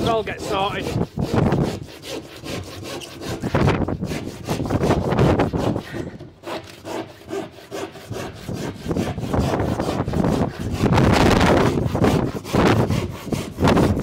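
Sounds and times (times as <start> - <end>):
handsaw cutting plasterboard: 0.0 - 14.0.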